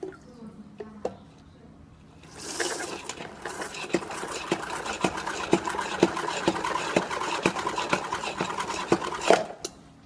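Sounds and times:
spin mop whirring: 2.2s - 9.7s.

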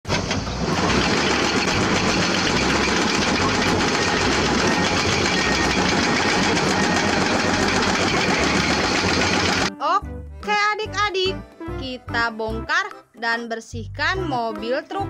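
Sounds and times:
engine running steadily: 0.1s - 9.7s.

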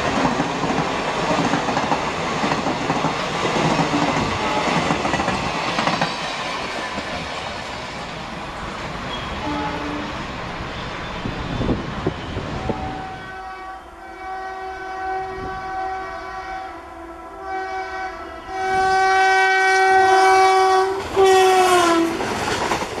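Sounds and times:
locomotive horn blowing: 9.2s - 10.2s, 12.5s - 22.2s.

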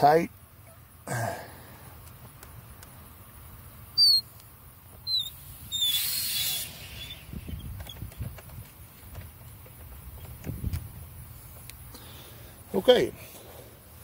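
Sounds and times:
spigot valve squeaking: 4.0s - 4.3s, 5.0s - 8.2s
water hissing through valve: 5.1s - 7.4s.

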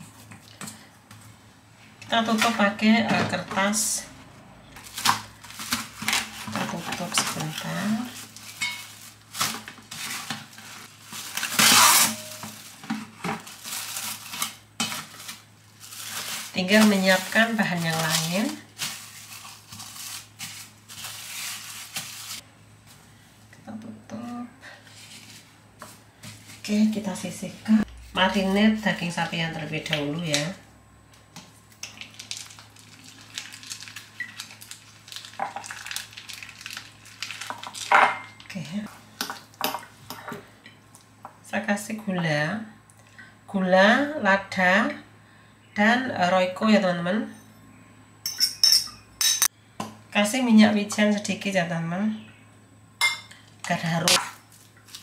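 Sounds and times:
cling film crinkling: 4.8s - 22.4s, 31.8s - 37.9s
cling film ripping: 8.2s - 12.8s, 31.9s - 37.9s.

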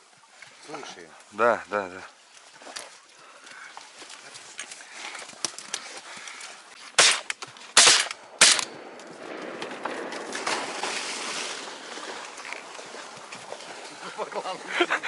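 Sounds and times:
shotgun shots: 7.0s - 11.8s.

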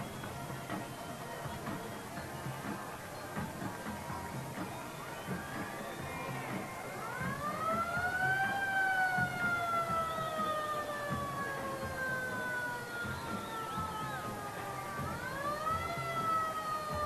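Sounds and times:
fire engine siren wailing: 5.2s - 17.0s.

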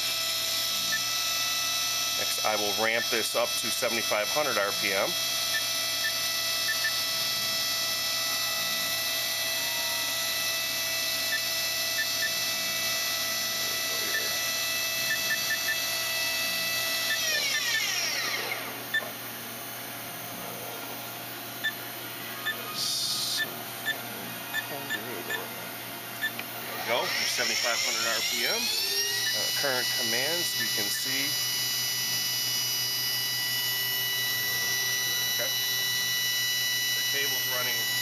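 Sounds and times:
machine spindle whining: 0.0s - 38.0s.

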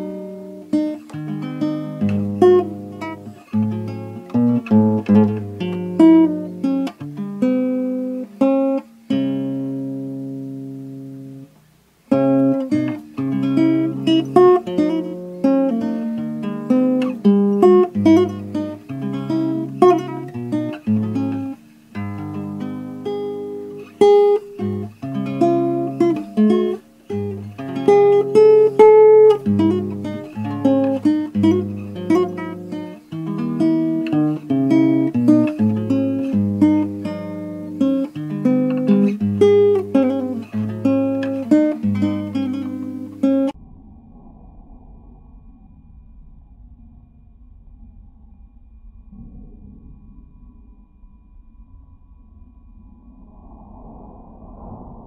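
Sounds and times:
solo acoustic guitar: 0.0s - 43.6s.

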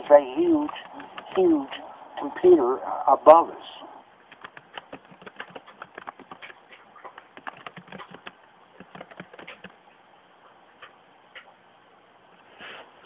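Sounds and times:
computer keyboard typing: 0.6s - 1.5s, 4.3s - 9.8s.

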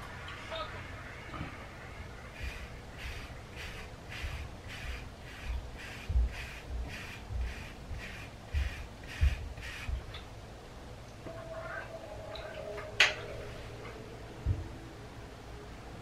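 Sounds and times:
brush swishing over hair: 2.3s - 10.0s.

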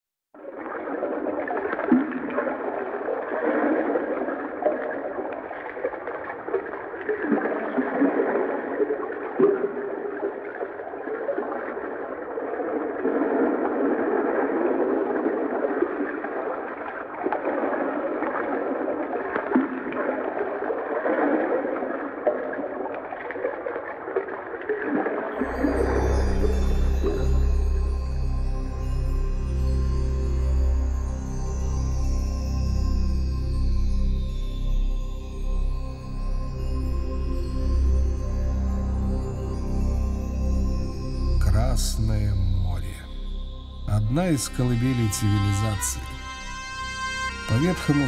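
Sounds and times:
muffled underwater water noise: 0.4s - 28.0s.

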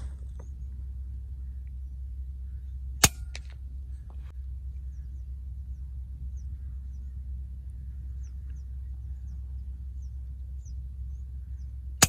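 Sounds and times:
steady low rumble: 0.0s - 12.0s
air rifle shot: 3.0s - 3.5s.

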